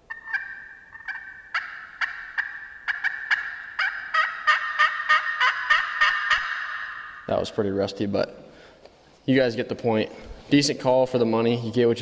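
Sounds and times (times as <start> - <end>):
high squeal of slate call: 0.0 - 7.4
turkey call yelps: 0.0 - 7.4.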